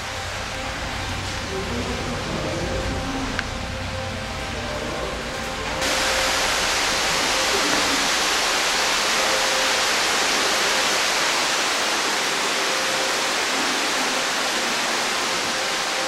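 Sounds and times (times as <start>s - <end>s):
stream rushing over rocks: 5.8s - 16.0s.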